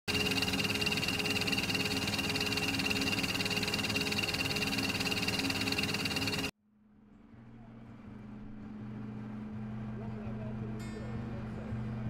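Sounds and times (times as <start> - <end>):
high whine: 0.1 - 6.5
mechanical running noise: 0.1 - 6.5.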